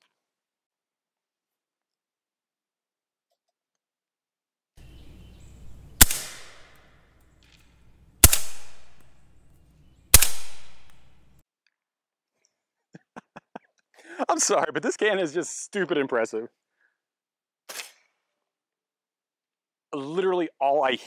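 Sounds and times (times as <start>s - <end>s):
suppressed rifle shots: 6.0s - 7.0s, 8.2s - 9.1s, 10.1s - 11.2s.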